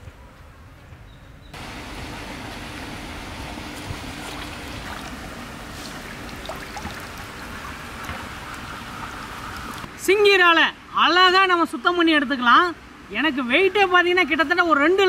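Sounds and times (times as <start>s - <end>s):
light water splashes: 1.6s - 10.0s
stream of water running: 1.6s - 15.0s.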